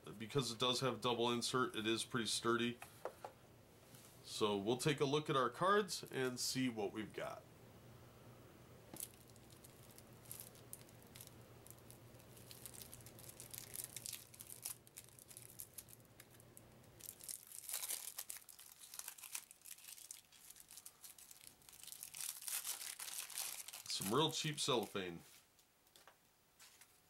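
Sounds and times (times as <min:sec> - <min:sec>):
cellophane wrap crinkling and tearing: 0:09.0 - 0:25.0.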